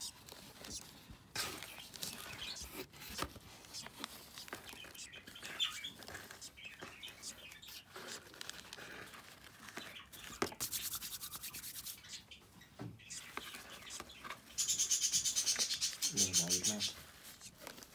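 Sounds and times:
hands rustling paper bedding: 0:00.0 - 0:12.2.

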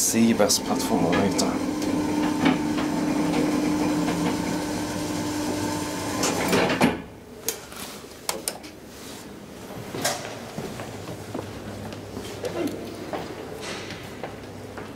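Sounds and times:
lift motor humming: 0:00.0 - 0:06.8.

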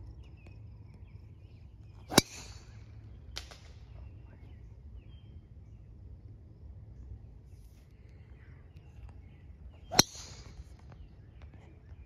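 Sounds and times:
birds chirping: 0:00.0 - 0:12.0
golf club striking ball: 0:02.1 - 0:02.7, 0:09.9 - 0:10.6.

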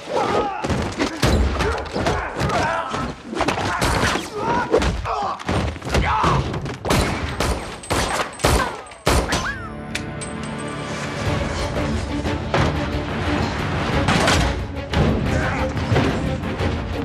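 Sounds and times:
dramatic orchestral score: 0:08.4 - 0:17.0.

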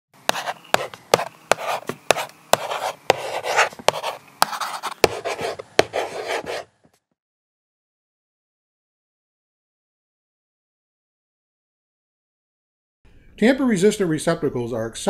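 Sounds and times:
marker scratching on board: 0:00.3 - 0:07.0
marker tapping on board: 0:00.3 - 0:07.0.

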